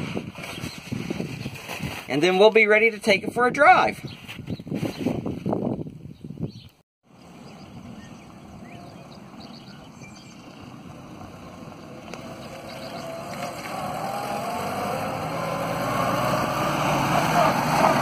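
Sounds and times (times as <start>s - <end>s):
jeep engine running: 7.2s - 18.0s.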